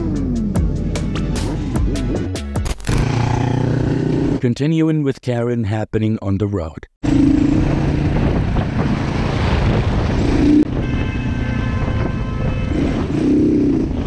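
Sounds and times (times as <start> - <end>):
wind rush on microphone: 7.1 - 14.0.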